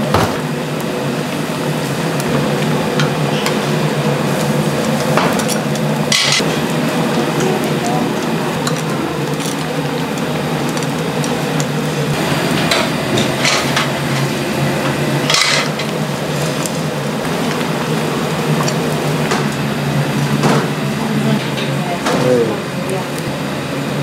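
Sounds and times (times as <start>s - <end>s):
grill and ventilation hum: 0.0s - 24.0s
metal tongs clinking and scraping: 4.8s - 6.5s.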